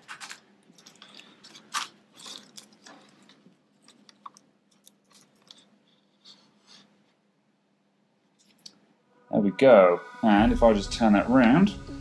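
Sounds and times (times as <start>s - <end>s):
cable handling clicks and rustles: 0.0s - 6.1s.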